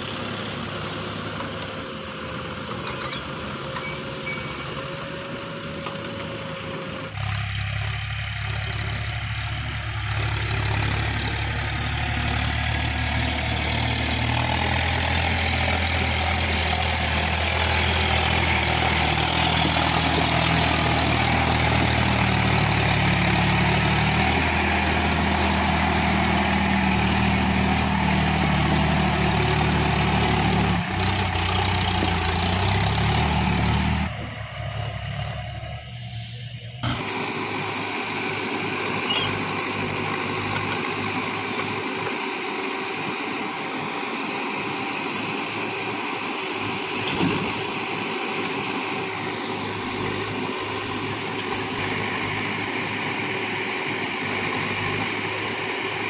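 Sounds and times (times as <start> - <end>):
backhoe and tractor engines running: 0.0 - 56.0
tractor diesel engine drone: 0.0 - 56.0.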